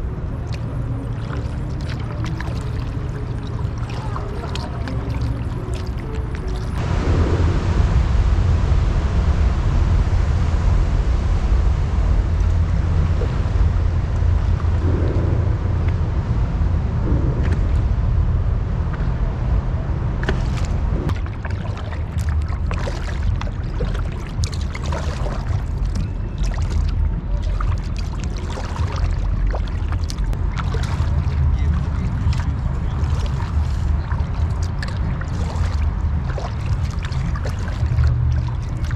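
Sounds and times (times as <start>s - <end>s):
paddle splashes and drips: 0.0s - 6.8s, 20.2s - 38.9s
water lapping at hull: 0.0s - 6.8s, 18.8s - 38.9s
steady low rumble: 0.0s - 38.9s.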